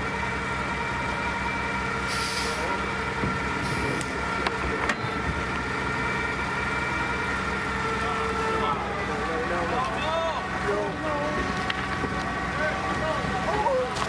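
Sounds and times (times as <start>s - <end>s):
large engine running: 0.0s - 14.0s
air hissing: 2.1s - 2.8s.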